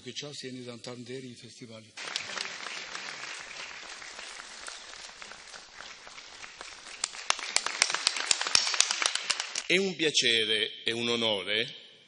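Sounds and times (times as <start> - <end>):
audience applauding: 2.0 - 9.7.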